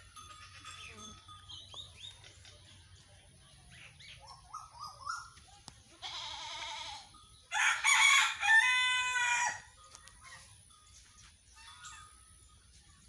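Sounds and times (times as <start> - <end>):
goat bleating: 5.9 - 7.2
rooster crowing: 7.5 - 9.7.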